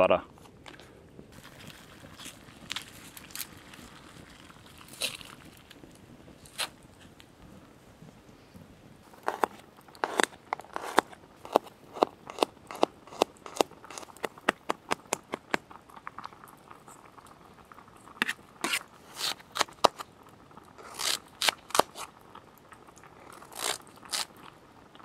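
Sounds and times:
knife crunching through vegetable: 4.8s - 5.5s, 9.1s - 14.4s, 18.2s - 20.0s, 20.8s - 22.1s, 23.4s - 24.3s.

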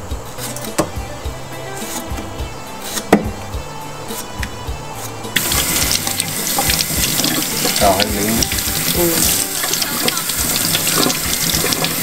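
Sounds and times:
faucet running into metal sink: 5.4s - 12.0s
hands rubbing vegetable under water: 5.4s - 12.0s.

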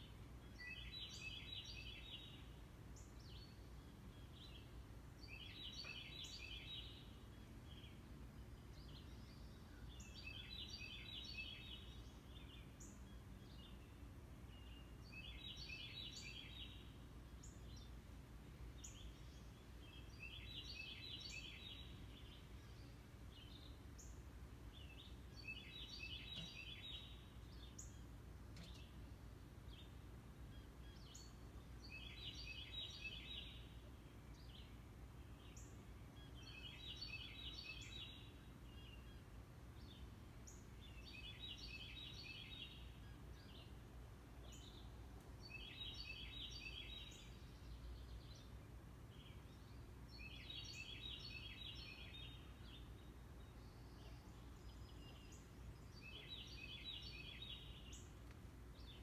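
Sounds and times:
songbird singing high phrase: 0.5s - 17.9s, 18.7s - 29.0s, 29.7s - 43.8s, 44.4s - 59.0s.

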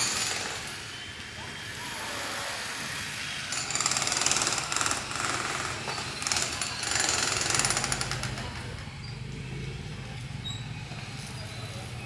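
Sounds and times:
jackhammer breaking concrete: 0.0s - 0.8s, 3.5s - 8.8s.

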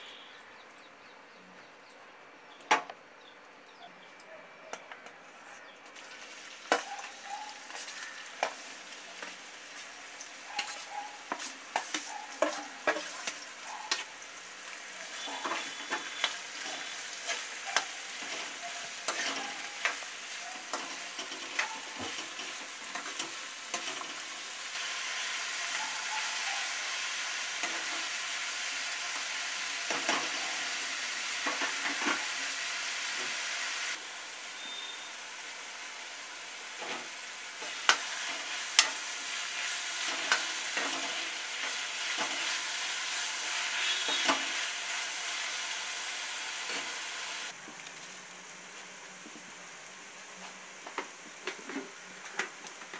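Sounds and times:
onions frying in hot oil: 5.9s - 52.9s
metal spatula scraping a pan: 6.7s - 9.3s, 10.6s - 14.1s, 15.1s - 24.4s, 40.0s - 42.6s, 43.6s - 44.6s.

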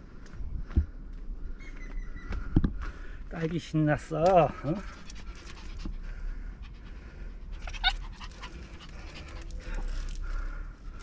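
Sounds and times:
dog panting: 4.5s - 10.6s
dog yelping: 7.6s - 8.7s.

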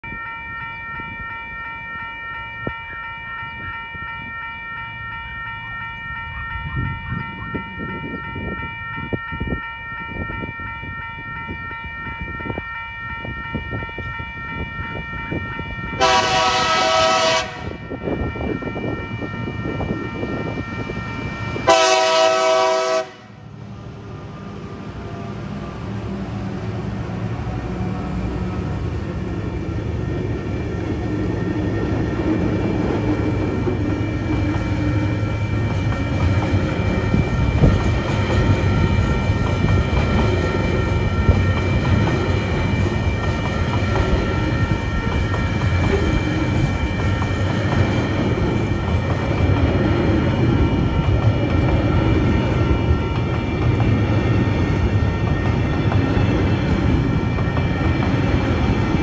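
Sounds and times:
level crossing bell ringing: 0.0s - 16.8s
train horn blasts: 16.0s - 20.5s, 21.6s - 23.4s.

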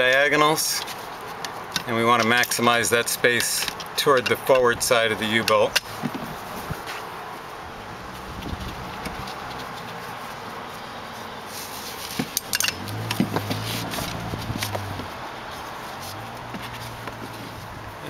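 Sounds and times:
webbing straps pulled tight: 11.5s - 15.1s
metal buckles clinking on crossbar: 12.2s - 13.5s.

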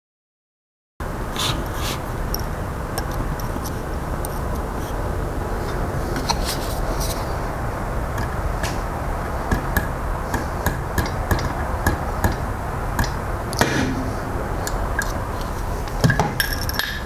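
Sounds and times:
hammer tapping metal punch: 9.5s - 14.1s
metal clink: 16.4s - 17.0s.

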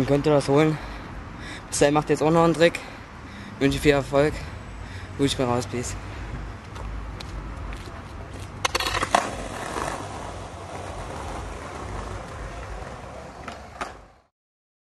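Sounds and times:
skateboard wheels rolling on paving: 6.6s - 14.3s
skateboard wooden clacks: 8.4s - 14.2s.

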